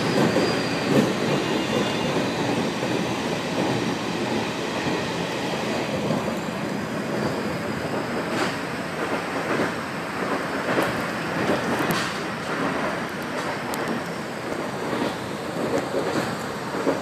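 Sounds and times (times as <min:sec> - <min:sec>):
wheels rumbling on rails: 0:00.0 - 0:17.0.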